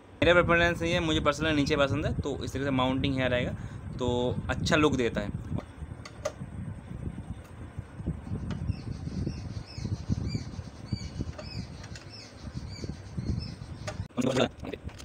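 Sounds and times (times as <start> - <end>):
spanner knocking and scraping: 11.1 - 13.0, 13.7 - 15.0.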